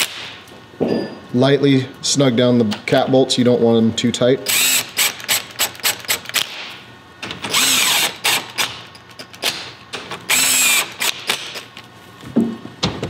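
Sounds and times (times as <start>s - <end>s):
cordless power tool whine: 7.5s - 8.4s, 10.3s - 11.6s.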